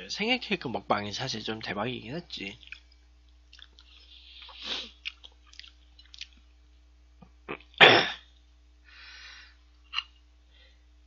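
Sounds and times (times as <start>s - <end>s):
chewing clicks: 2.6s - 6.5s.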